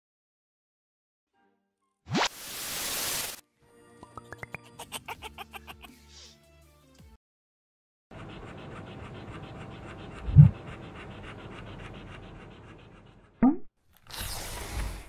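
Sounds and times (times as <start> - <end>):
dog panting: 8.1 - 13.4
short rising swish: 10.2 - 10.6.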